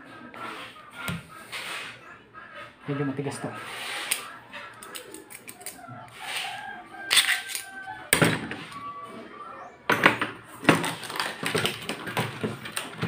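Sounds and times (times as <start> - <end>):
metal parts clicking and clattering: 7.1 - 7.7.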